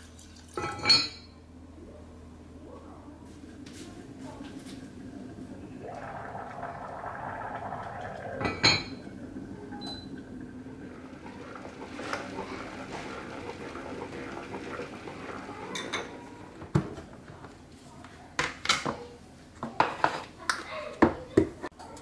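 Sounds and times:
water pouring into pot: 0.0 - 0.7, 3.5 - 16.9
kitchen clatter: 11.5 - 17.6.

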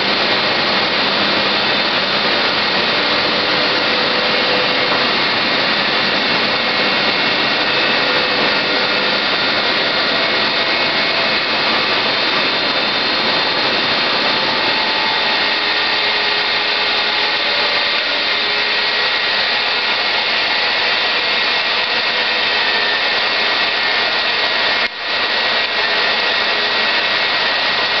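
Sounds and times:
foam-cutting machine whirring: 0.0 - 28.0.

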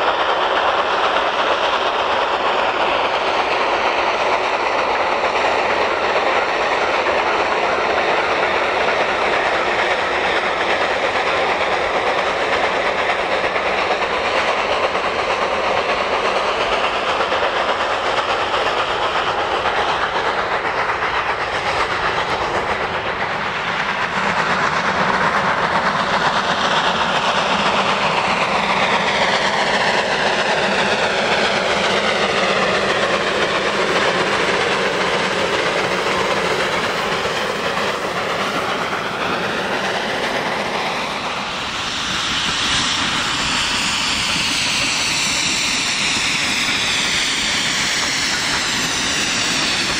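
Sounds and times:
steam locomotive working: 0.0 - 49.9.

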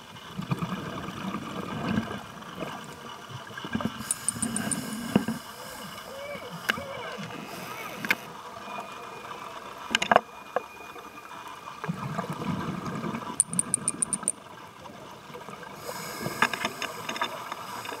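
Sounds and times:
sharp clicks: 4.0 - 4.8, 13.4 - 14.4
high ticks: 4.0 - 5.0, 13.4 - 14.4
regulator inhalation hiss: 4.0 - 6.6, 15.8 - 18.0.

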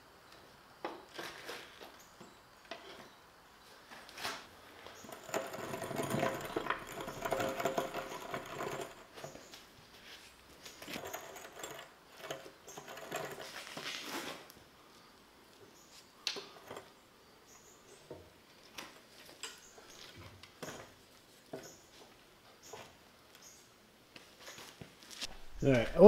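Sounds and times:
jack squeaking: 4.2 - 9.7, 10.6 - 14.5
floor jack pump clattering: 4.9 - 9.6, 10.6 - 14.4.

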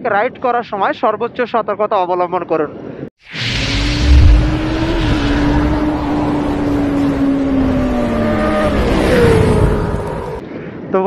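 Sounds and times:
loud low boom: 3.2 - 10.4.

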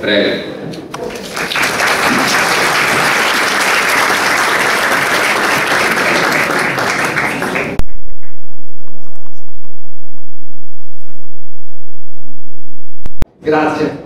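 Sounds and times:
audience applauding: 1.0 - 8.8.

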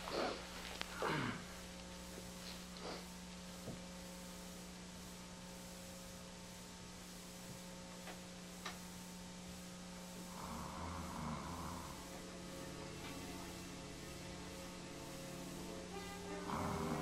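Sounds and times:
low electrical hum and hiss: 0.0 - 17.0
faint ticks: 7.5 - 8.9.

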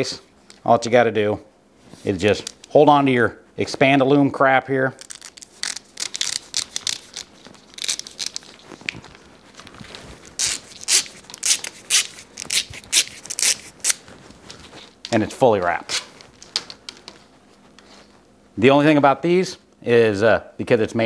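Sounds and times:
plastic tubing crackling: 4.9 - 17.3.

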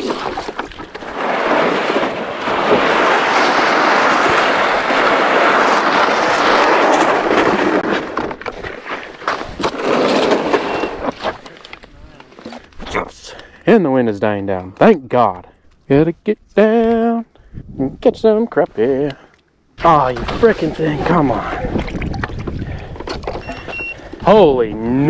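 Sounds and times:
plastic sled scraping over ice: 0.0 - 12.7.

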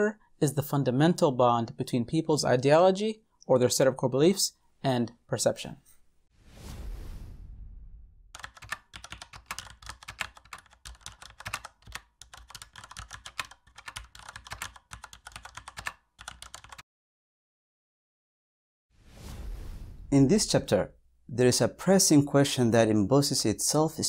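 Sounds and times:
low rumble: 6.4 - 8.3, 19.1 - 20.3
keyboard typing: 8.3 - 16.8.

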